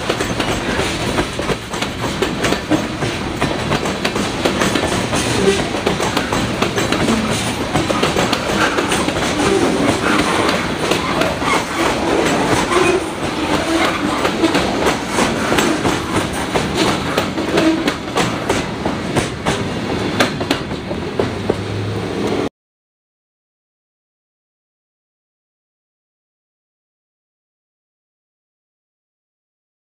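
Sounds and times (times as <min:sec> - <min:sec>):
train wheels clicking over rail joints: 0:00.0 - 0:22.4.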